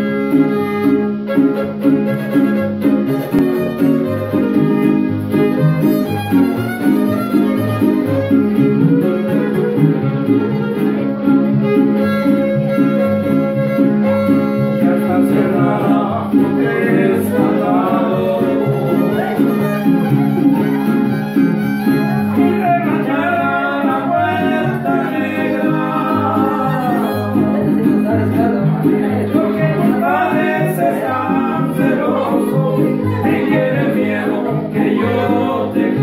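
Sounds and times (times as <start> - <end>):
violin playing a melody: 0.0 - 14.9, 18.5 - 22.6.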